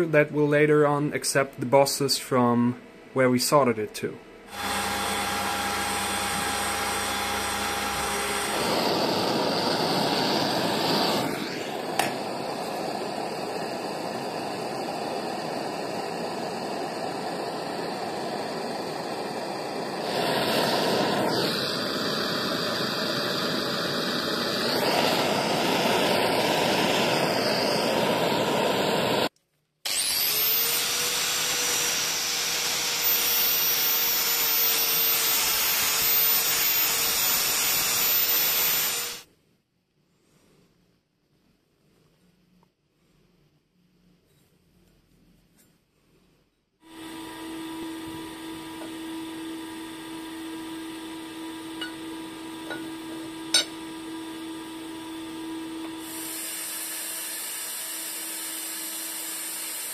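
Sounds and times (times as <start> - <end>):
gas torch hissing: 4.5 - 39.3, 46.8 - 59.9.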